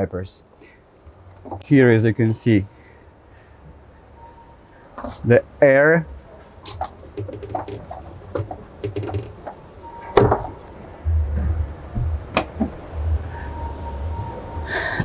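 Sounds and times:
locker door shutting: 6.6s - 10.8s
low hall rumble: 9.6s - 15.0s.

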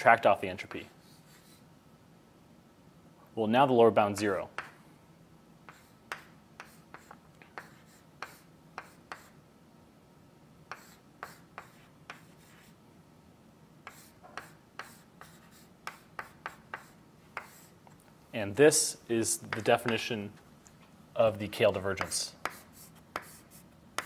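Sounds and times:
chalk tapping and scratching on blackboard: 0.6s - 1.7s, 4.5s - 4.8s, 5.6s - 9.4s, 10.7s - 12.8s, 13.8s - 18.0s, 19.4s - 20.1s, 22.0s - 24.0s.

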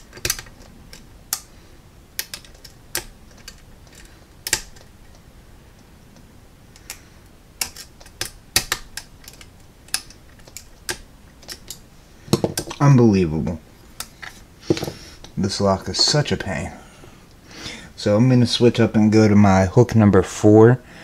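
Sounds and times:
lock pick clicking against pins: 0.0s - 1.5s, 2.1s - 5.9s, 7.6s - 12.8s.

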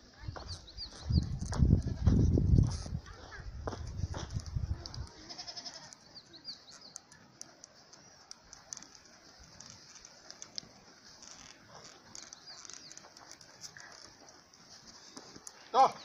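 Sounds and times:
soft hoof steps: 0.0s - 16.0s
small high chirps: 5.8s - 15.8s.

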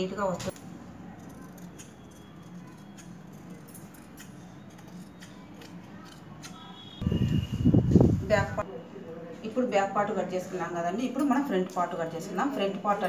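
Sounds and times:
shears snipping fabric: 1.2s - 6.8s.

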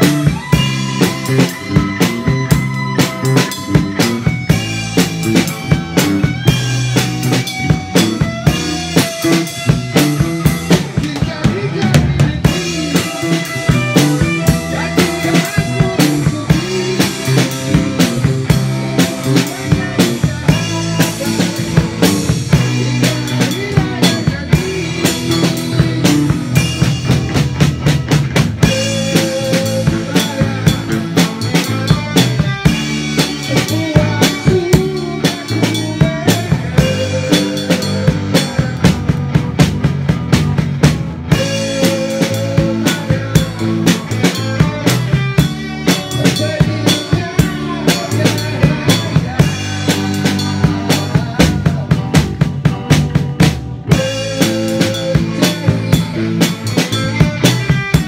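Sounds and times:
drum kit beat: 0.0s - 58.0s
electric guitar: 0.0s - 58.0s
man singing into microphone: 10.2s - 27.1s, 28.6s - 39.3s, 41.3s - 52.2s, 53.9s - 58.0s.

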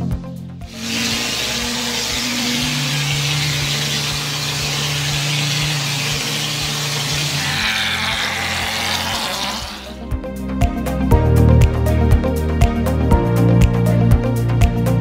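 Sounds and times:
background music with beat: 0.0s - 3.7s, 9.9s - 15.0s
compressed air spray hiss: 0.7s - 9.9s.

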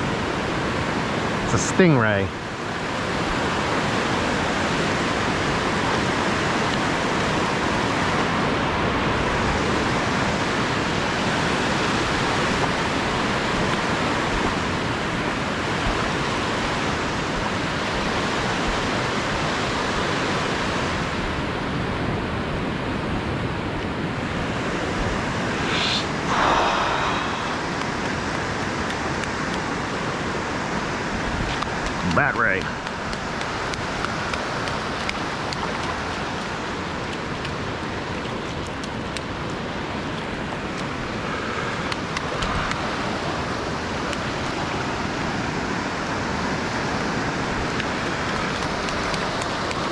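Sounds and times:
surf washing up a beach: 0.0s - 49.9s
wind: 0.0s - 49.9s.

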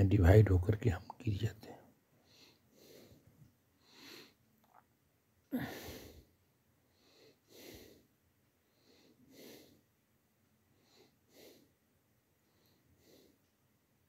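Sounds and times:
person breathing softly: 1.8s - 4.5s, 5.5s - 9.9s, 10.6s - 13.5s.

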